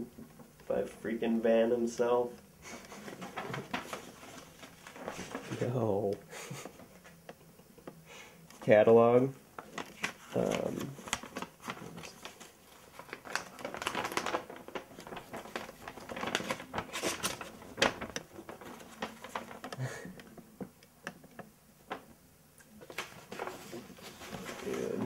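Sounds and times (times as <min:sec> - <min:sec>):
paper rustling and crinkling: 0:02.6 - 0:07.2, 0:09.6 - 0:20.5, 0:22.7 - 0:25.0.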